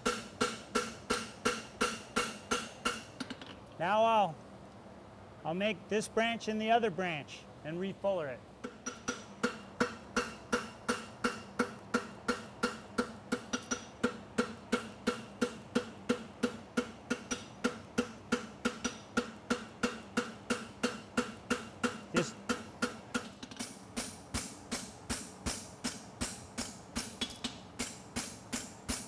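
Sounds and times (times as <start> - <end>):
hammer striking horseshoe on anvil: 0.0 - 3.1, 8.6 - 23.3.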